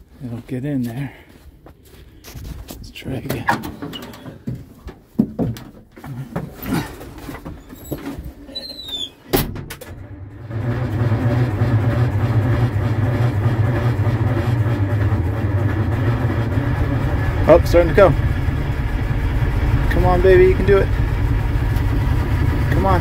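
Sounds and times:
knocks: 0:03.3 - 0:07.5
starter cranking diesel engine: 0:09.9 - 0:23.0.

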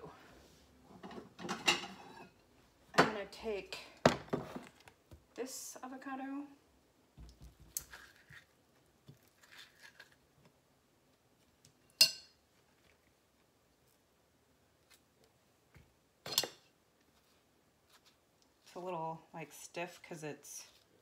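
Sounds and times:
soft handling of avocado: 0:16.9 - 0:18.9, 0:20.6 - 0:21.0.

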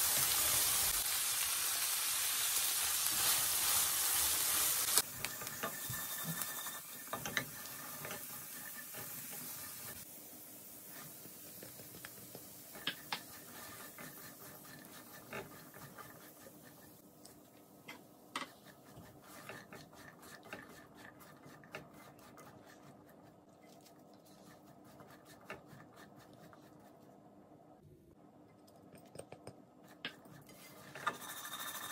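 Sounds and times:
faint sizzle: 0:00.0 - 0:19.5
spatula scraping frying pan: 0:03.0 - 0:10.0, 0:12.4 - 0:17.1, 0:18.4 - 0:23.2, 0:30.3 - 0:31.9.

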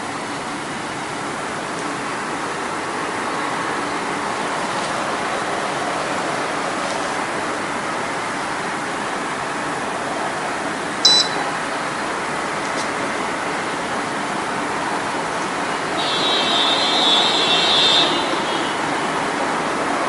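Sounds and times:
short high electronic beep: 0:11.0 - 0:11.5.

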